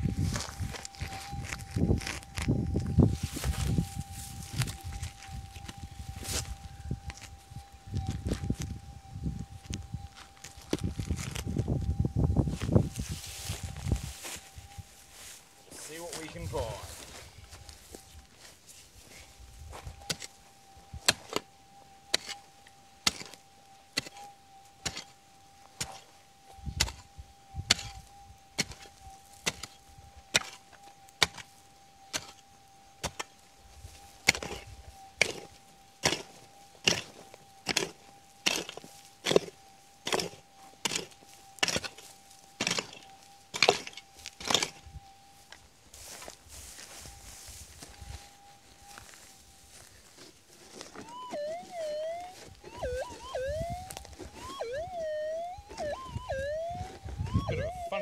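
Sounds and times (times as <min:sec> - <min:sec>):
metal detector steady tone: 0:00.0 - 0:58.0
pick striking stony ground: 0:21.0 - 0:21.5, 0:22.1 - 0:22.4, 0:23.0 - 0:23.4, 0:24.0 - 0:25.2, 0:26.8 - 0:27.0, 0:28.6 - 0:31.5, 0:34.2 - 0:44.8.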